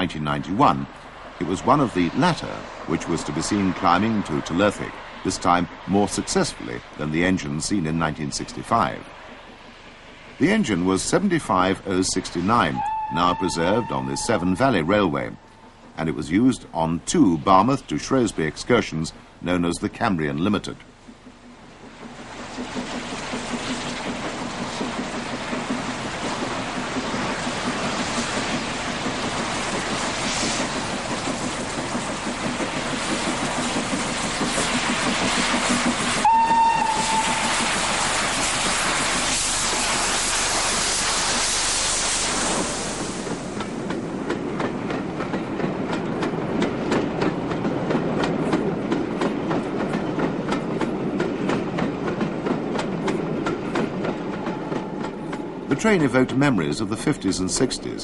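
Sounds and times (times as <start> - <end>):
steam locomotive whistle: 12.6 - 15.8, 36.2 - 38.1
wheels clicking over rail joints: 20.3 - 39.3, 43.0 - 57.8
loud steam hiss: 22.2 - 43.9.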